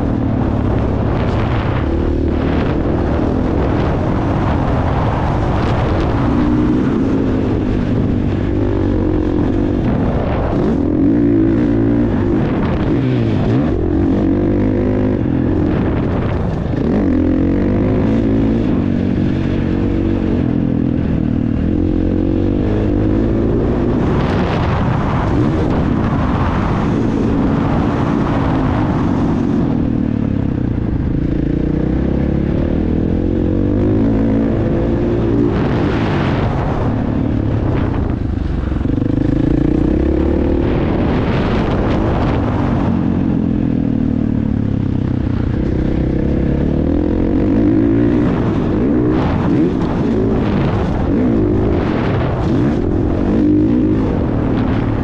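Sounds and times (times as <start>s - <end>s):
motocross bike engine revving: 0.0s - 29.7s, 44.0s - 55.0s.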